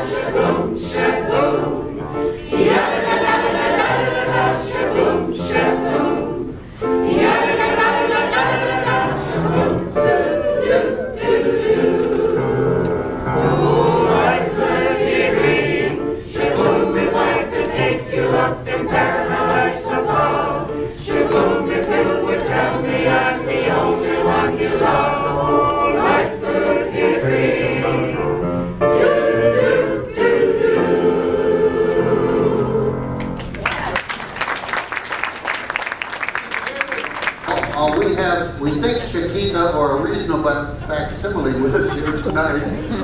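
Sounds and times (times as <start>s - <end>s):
mixed choir singing: 0.0s - 33.2s
audience applause: 33.2s - 38.3s.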